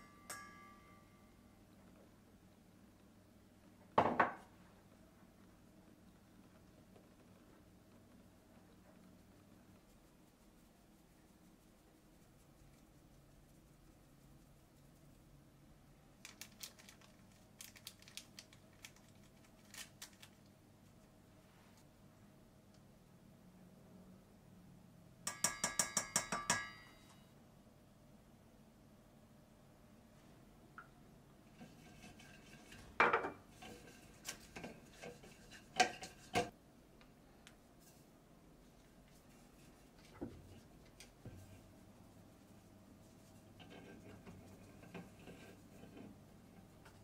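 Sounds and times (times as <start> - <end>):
paper sachet crinkling: 16.2 - 20.5
pastry brush brushing pan: 31.5 - 36.6, 37.7 - 47.0.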